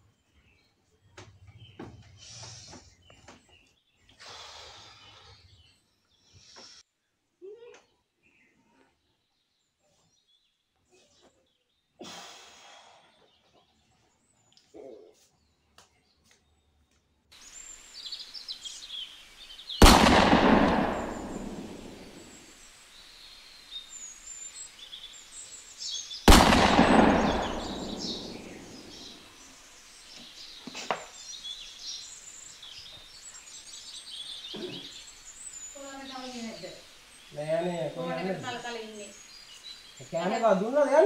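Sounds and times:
birds chirping: 0:00.0 - 0:06.8, 0:17.4 - 0:41.0
loud booms: 0:19.8 - 0:22.4, 0:26.3 - 0:29.2.

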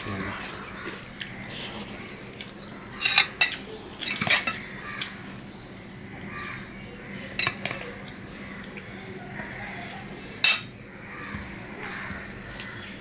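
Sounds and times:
metal spoon clinking on steel bowl: 0:10.4 - 0:10.7.

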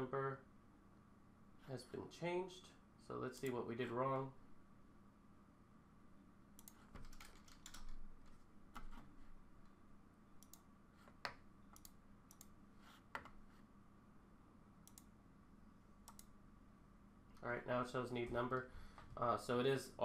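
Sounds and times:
keyboard and mouse clicks: 0:06.6 - 0:09.1, 0:10.4 - 0:13.4, 0:14.8 - 0:15.1, 0:16.0 - 0:16.3.

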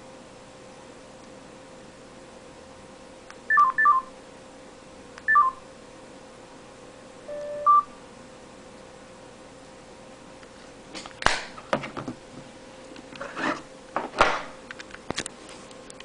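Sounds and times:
phone electronic chirps: 0:03.5 - 0:04.1, 0:05.3 - 0:05.6, 0:07.3 - 0:07.9
phone tone stepping up: 0:07.3 - 0:07.9.

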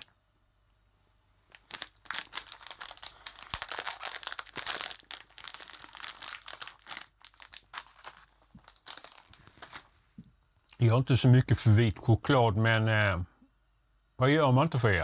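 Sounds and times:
plastic snack bag crinkling: 0:01.5 - 0:09.9.

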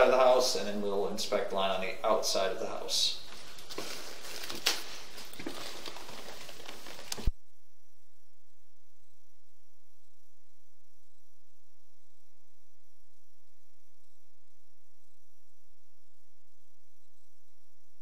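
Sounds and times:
steady electrical hum: 0:00.0 - 0:18.0
scratchy handling noise: 0:03.3 - 0:07.3.

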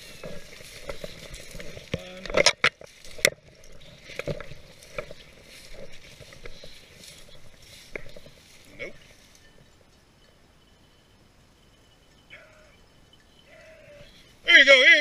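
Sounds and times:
footsteps crunching through snow: 0:00.0 - 0:09.6
brush scraping: 0:00.0 - 0:09.8.

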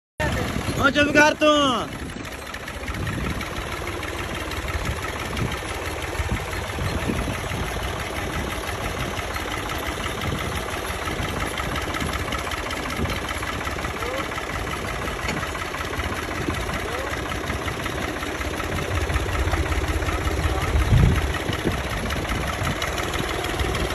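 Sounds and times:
tractor engine running: 0:00.2 - 0:23.9.

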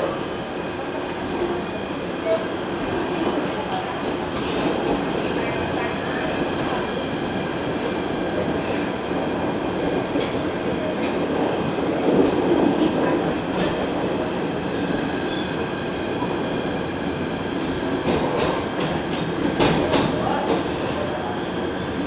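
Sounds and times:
subway car wheels rumbling on track: 0:00.0 - 0:22.0
sharp clicks from rails: 0:10.0 - 0:11.6.

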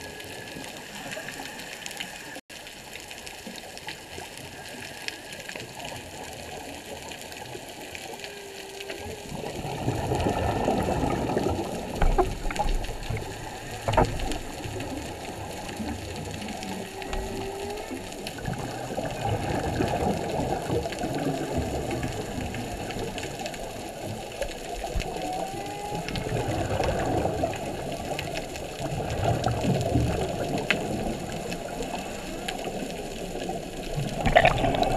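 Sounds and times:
rushing underwater noise: 0:00.0 - 0:34.9
whale calls: 0:07.9 - 0:20.1, 0:24.5 - 0:33.5.

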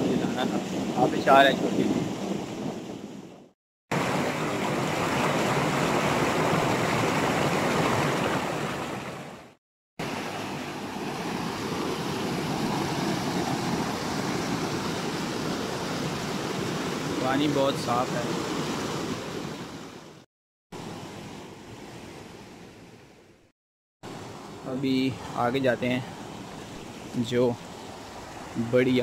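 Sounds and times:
water rushing over rocks: 0:03.9 - 0:20.2.

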